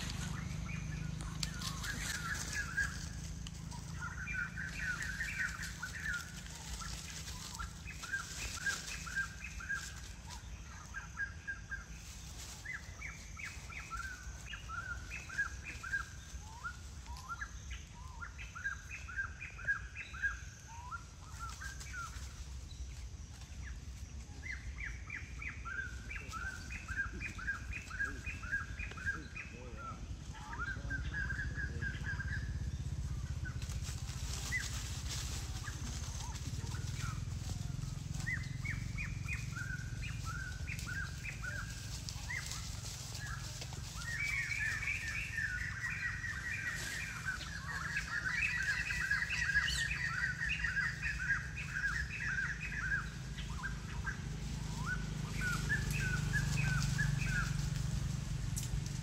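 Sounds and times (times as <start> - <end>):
bird chirping quickly: 24.4 - 58.9.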